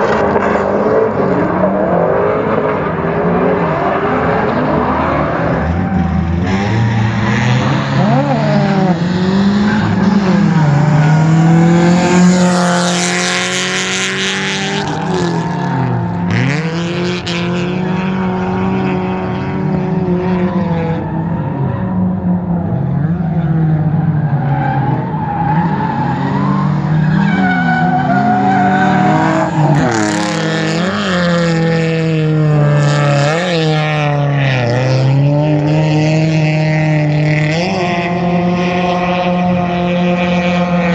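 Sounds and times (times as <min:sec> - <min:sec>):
car engine revving: 0:00.0 - 0:40.9
tyres squealing on asphalt: 0:01.2 - 0:18.8, 0:20.4 - 0:31.7.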